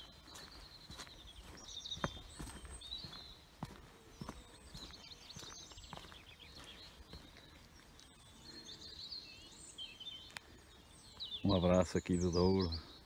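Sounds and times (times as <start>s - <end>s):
soft footsteps: 0.0s - 8.3s
small birds twittering: 0.0s - 13.0s.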